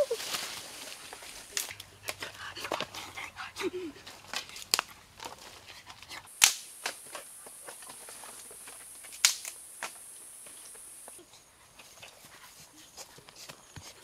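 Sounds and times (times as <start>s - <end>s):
forest insects buzzing: 0.0s - 2.9s, 6.2s - 14.0s.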